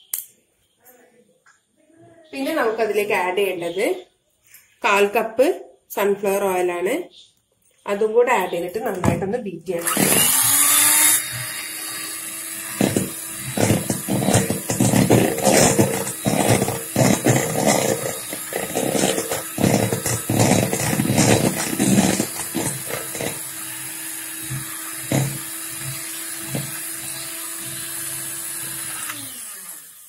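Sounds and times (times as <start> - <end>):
electric hand mixer running: 9.8 - 30.0.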